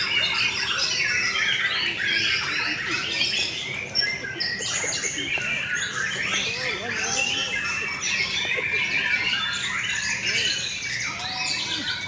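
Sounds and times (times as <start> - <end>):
caged birds singing: 0.0 - 12.0.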